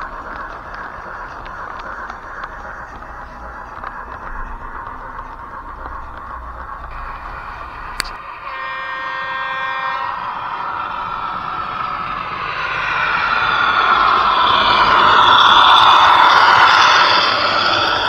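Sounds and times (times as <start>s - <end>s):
model train running on track: 0.0s - 18.0s
click: 7.9s - 8.2s
model train horn toot: 8.4s - 10.6s.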